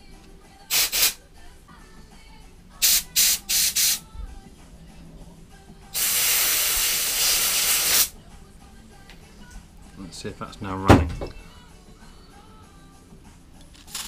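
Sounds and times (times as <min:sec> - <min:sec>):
compressed air blow gun hissing: 0:00.7 - 0:01.2, 0:02.8 - 0:04.1, 0:05.9 - 0:08.2.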